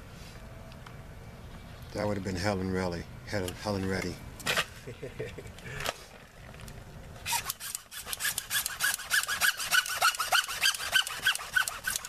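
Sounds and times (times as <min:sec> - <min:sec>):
hacksaw cutting plastic pipe: 0:07.3 - 0:12.0.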